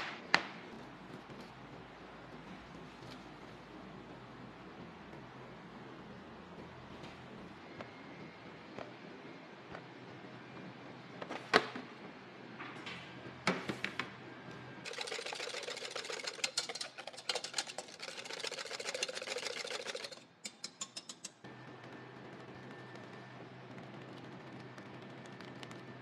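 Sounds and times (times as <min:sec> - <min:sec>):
whisk clicking against metal pot: 0:14.9 - 0:21.4.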